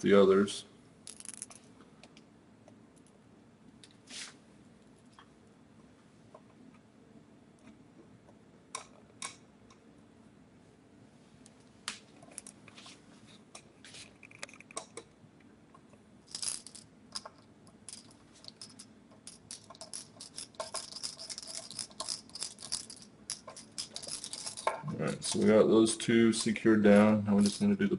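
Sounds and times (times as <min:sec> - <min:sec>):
small metallic clicks and scraping: 0:13.5 - 0:15.1, 0:15.7 - 0:25.5
screws turning into metal case: 0:17.9 - 0:24.8.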